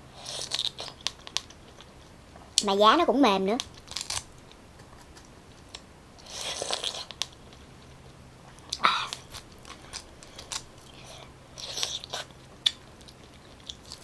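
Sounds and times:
wet chewing and biting: 0:03.6 - 0:14.0.

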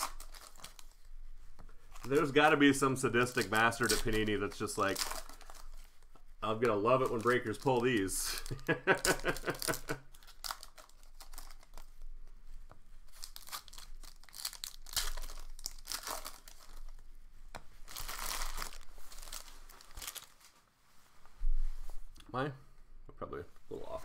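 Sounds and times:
plastic wrappers crinkling and tearing: 0:00.0 - 0:12.3, 0:13.0 - 0:20.7.

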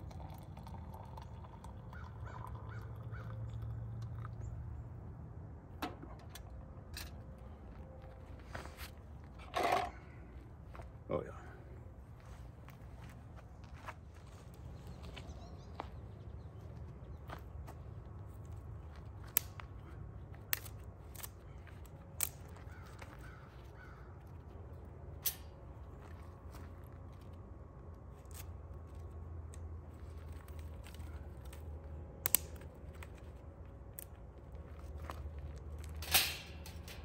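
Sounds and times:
faint bird cawing: 0:01.2 - 0:04.5, 0:22.5 - 0:24.8.

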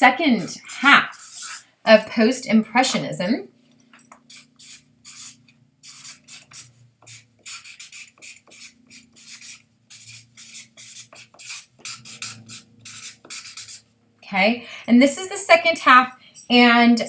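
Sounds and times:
marker writing on paper: 0:00.4 - 0:01.6, 0:04.1 - 0:13.9.

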